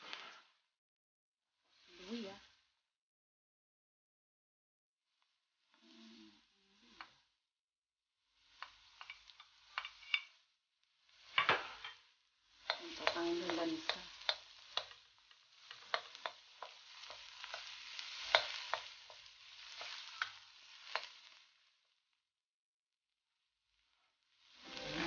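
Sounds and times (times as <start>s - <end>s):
onion sizzling in a wok: 0.0s - 0.6s, 1.6s - 2.8s, 5.5s - 7.4s, 8.2s - 22.3s, 23.4s - 25.0s
wooden spoon scraping a wok: 8.4s - 10.4s, 11.1s - 21.6s, 24.5s - 25.0s.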